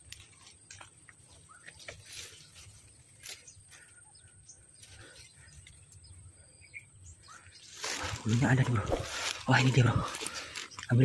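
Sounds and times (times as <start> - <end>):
footsteps rustling through grass: 0.0 - 4.0, 7.6 - 10.8.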